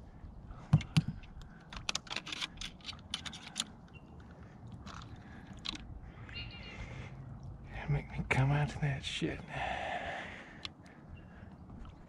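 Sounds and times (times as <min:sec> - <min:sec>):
fishing reel clicking and scratching: 0:01.6 - 0:03.8.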